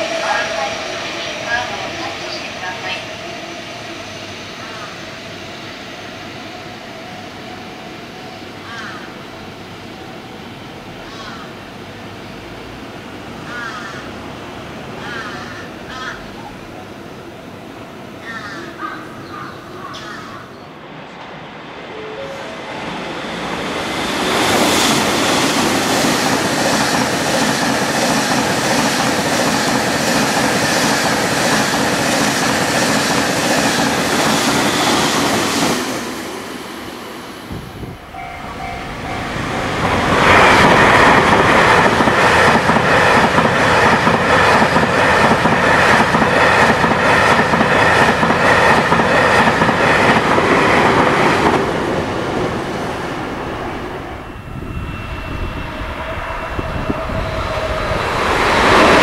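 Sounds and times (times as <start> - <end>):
short tone: 38.1 - 39.8.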